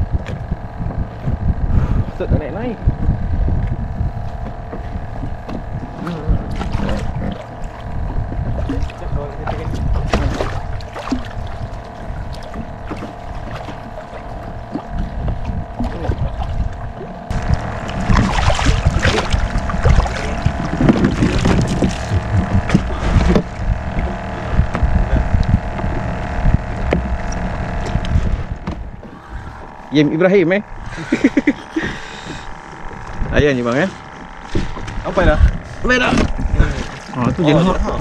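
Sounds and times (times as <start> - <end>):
steady hum with low rumble: 0.0 - 38.0
fish thrashing and splashing: 4.6 - 29.9, 34.0 - 37.4.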